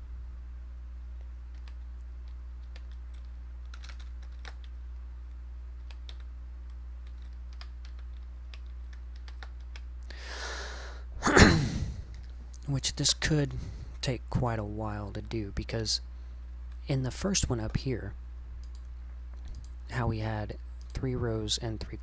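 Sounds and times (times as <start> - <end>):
steady low hum: 0.0 - 22.0
keyboard typing: 1.2 - 4.8, 5.8 - 10.0
loud breath: 10.1 - 12.2.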